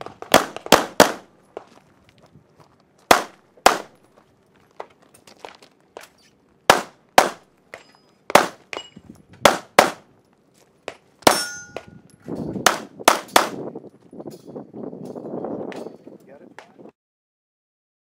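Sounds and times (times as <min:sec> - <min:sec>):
handgun shots: 0:03.1 - 0:03.9, 0:06.7 - 0:07.4, 0:08.3 - 0:10.0, 0:12.6 - 0:13.6.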